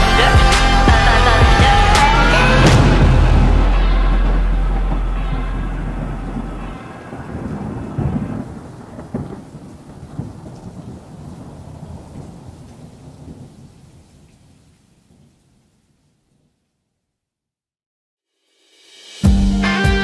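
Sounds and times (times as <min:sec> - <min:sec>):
deep held low note: 0:00.0 - 0:07.2
thunder rumbling: 0:00.0 - 0:14.2
steady rain: 0:02.6 - 0:16.3.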